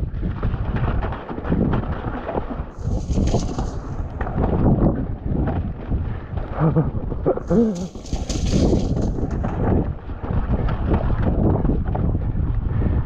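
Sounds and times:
wind buffeting microphone: 0.0 - 13.0
bike rattling over rocks: 0.8 - 5.4, 7.8 - 11.7
bike tyres churning through mud: 2.7 - 6.2, 7.5 - 11.2.

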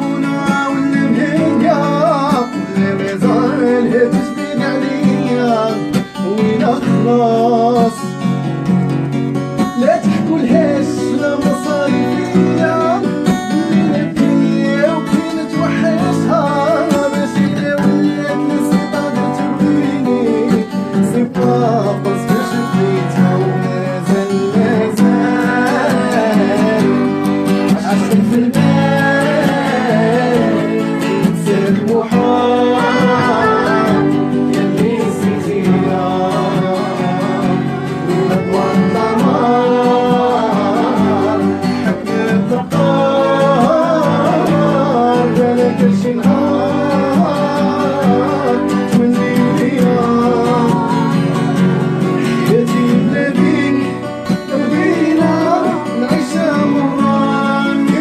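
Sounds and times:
plucked string instrument: 0.0 - 58.0
violin playing a wavering melody: 32.0 - 34.5, 37.5 - 41.8.

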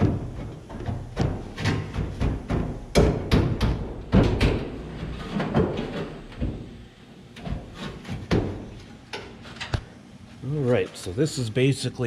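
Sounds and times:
metal panel knocking and scraping: 0.0 - 6.7.

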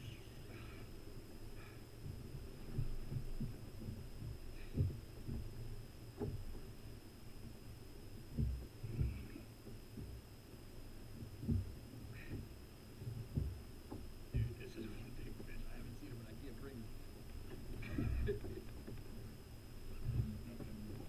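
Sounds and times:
faint high whine: 0.0 - 21.0
muffled thumps on kayak hull: 2.0 - 6.8, 8.2 - 10.2, 11.1 - 14.6.

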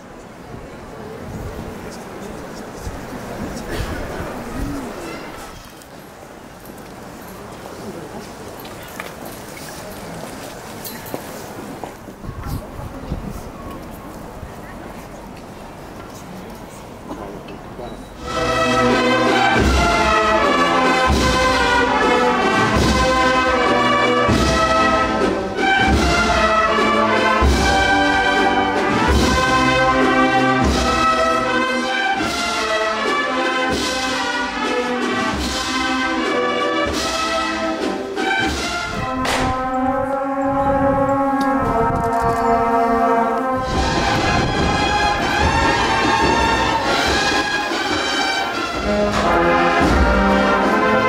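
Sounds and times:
drum beating: 18.2 - 39.8, 43.6 - 51.0
brass band playing a march: 18.2 - 51.0.

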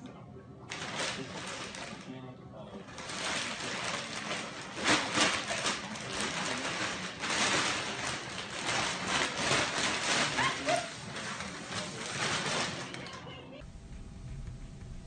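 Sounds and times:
plastic bag crinkling: 0.7 - 2.1, 2.8 - 13.4
bag sliding on tiled floor: 2.9 - 13.1.

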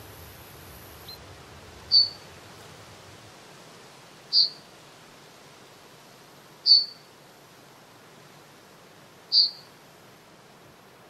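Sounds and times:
bird giving high calls: 1.9 - 2.2, 4.3 - 4.6, 6.7 - 7.0, 9.3 - 9.6.

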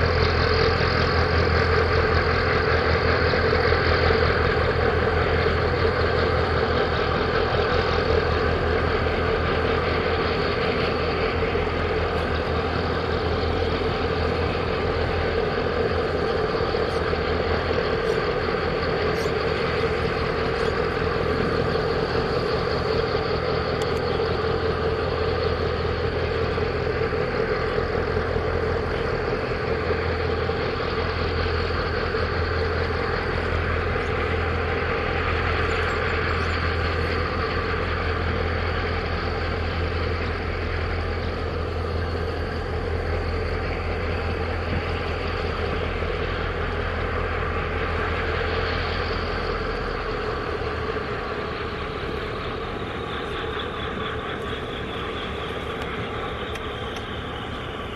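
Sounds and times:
low diesel engine drone: 0.0 - 57.9.

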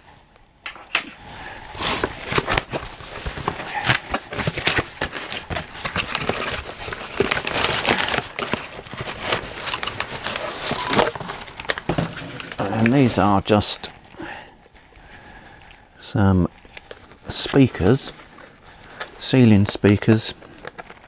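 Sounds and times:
packing material rustling: 1.2 - 15.7, 16.5 - 21.0
cardboard flaps scraping: 1.8 - 13.0.

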